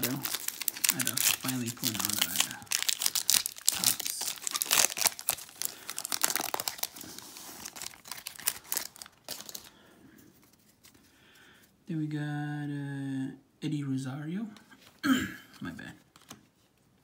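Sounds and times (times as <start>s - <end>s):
foil wrapper tearing and crinkling: 0.0s - 9.7s.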